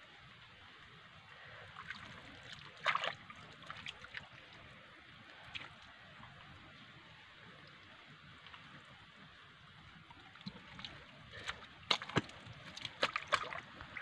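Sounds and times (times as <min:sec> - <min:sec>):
small water splashes: 0:01.4 - 0:06.7, 0:07.4 - 0:14.0
hand squelching in wet mud: 0:10.4 - 0:14.0.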